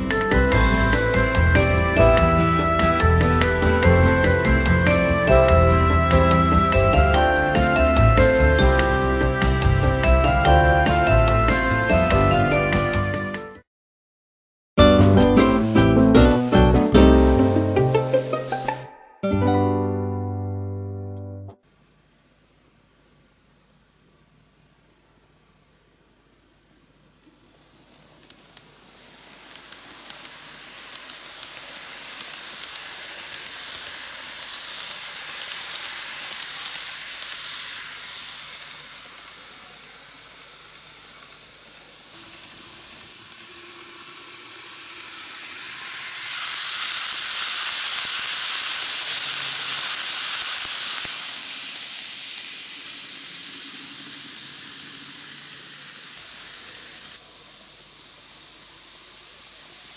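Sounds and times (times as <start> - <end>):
model train rolling hiss: 0.0 - 11.8, 14.9 - 18.9, 27.2 - 59.9
small clicks of track: 27.2 - 57.2.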